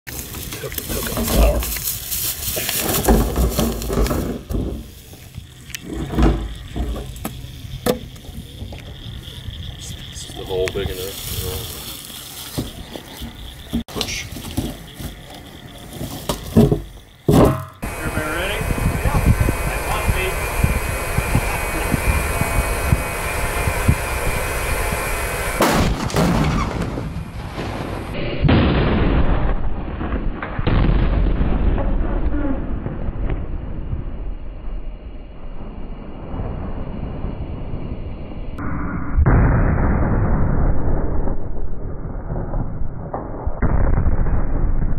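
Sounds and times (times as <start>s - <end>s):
plastic bag crinkling: 0.1s - 4.4s
explosion boom: 17.5s - 34.4s, 38.6s - 44.9s
steady rushing noise: 17.8s - 26.0s.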